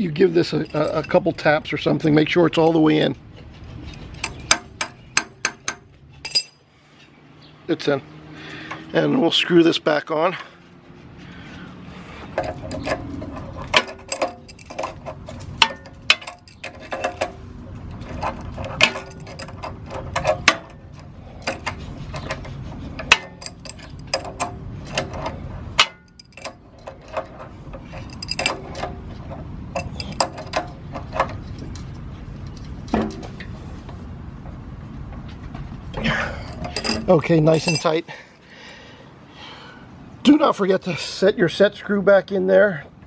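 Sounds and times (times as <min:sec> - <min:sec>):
wrench clinking on metal fitting: 0:00.4 - 0:01.5, 0:04.0 - 0:06.6, 0:12.4 - 0:17.4, 0:18.1 - 0:29.0, 0:29.8 - 0:31.3, 0:36.4 - 0:38.1.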